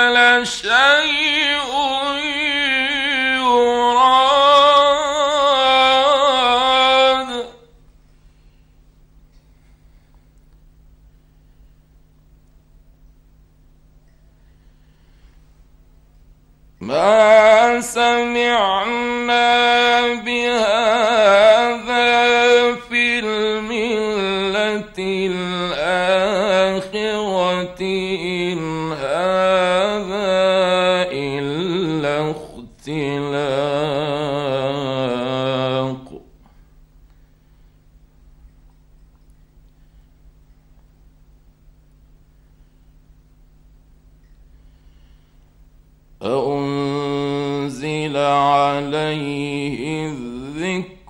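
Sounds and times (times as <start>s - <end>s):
man chanting a long melodic vowel: 0.0s - 7.8s, 16.8s - 36.4s, 46.2s - 51.0s.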